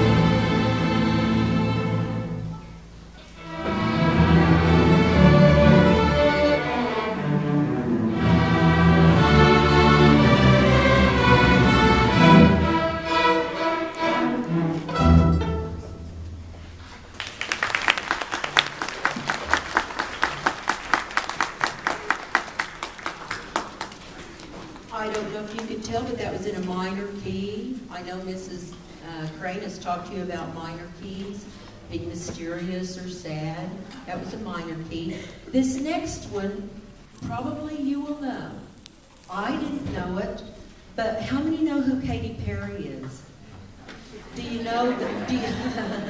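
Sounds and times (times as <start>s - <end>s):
string orchestra sustained chord: 0.0s - 16.5s
audience applause: 17.1s - 25.3s.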